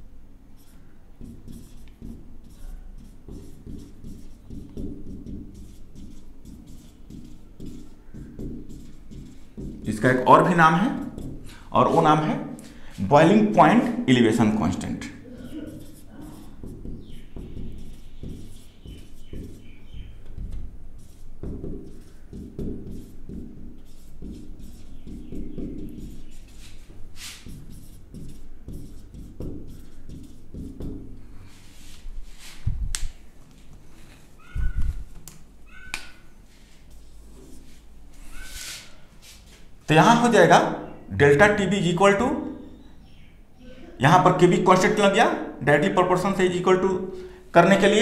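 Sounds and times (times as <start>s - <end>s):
marker pen writing on whiteboard: 0.5s - 32.5s, 34.4s - 40.4s
marker tip squeaks: 15.4s - 20.2s, 34.4s - 35.1s, 35.7s - 36.3s, 38.2s - 38.9s.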